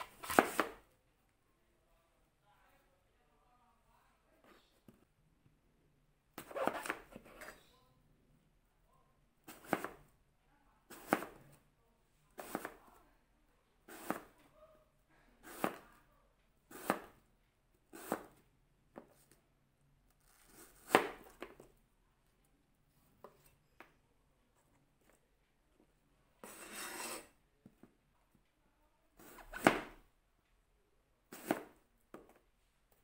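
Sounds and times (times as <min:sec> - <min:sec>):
knife slicing apple on board: 0:00.0 - 0:00.8, 0:06.4 - 0:07.5, 0:09.5 - 0:10.0, 0:10.9 - 0:11.6, 0:12.4 - 0:12.8, 0:13.9 - 0:14.3, 0:15.4 - 0:15.9, 0:16.7 - 0:17.2, 0:17.9 - 0:18.4, 0:20.5 - 0:21.6, 0:26.4 - 0:27.3, 0:29.2 - 0:30.0, 0:31.3 - 0:32.4.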